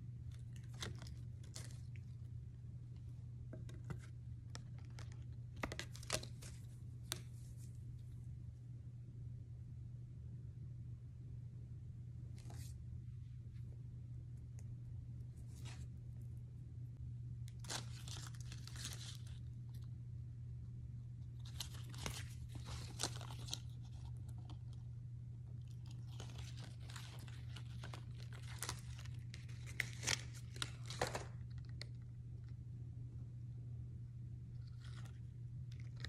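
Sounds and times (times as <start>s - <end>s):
steady low hum: 0.0s - 36.0s
cardboard and paper crinkling: 0.3s - 2.2s, 3.5s - 7.8s, 17.5s - 19.8s, 21.4s - 24.9s, 25.6s - 32.0s.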